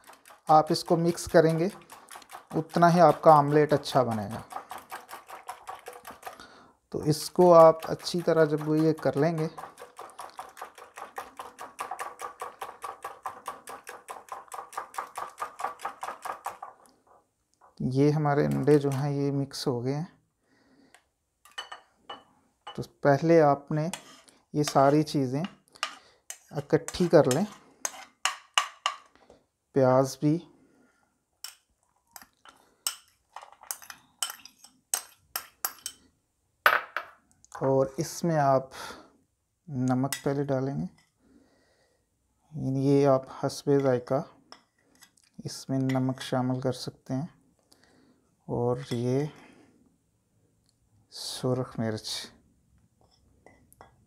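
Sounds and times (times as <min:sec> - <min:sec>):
whisk clicking against glass bowl: 0:00.0 - 0:06.4, 0:07.2 - 0:16.9
spoon clinking on ceramic bowl: 0:21.5 - 0:22.8.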